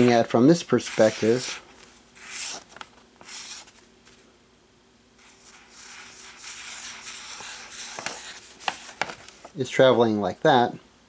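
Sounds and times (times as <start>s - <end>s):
marker scratching on paper: 0.8s - 1.6s, 2.2s - 2.6s, 3.2s - 3.7s, 5.2s - 9.0s.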